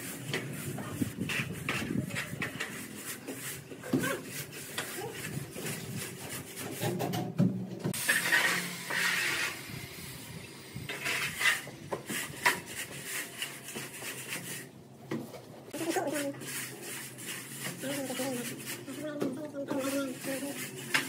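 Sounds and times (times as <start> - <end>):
scraping mortar with metal straightedge: 8.0 - 9.6, 10.9 - 14.7, 15.8 - 21.0.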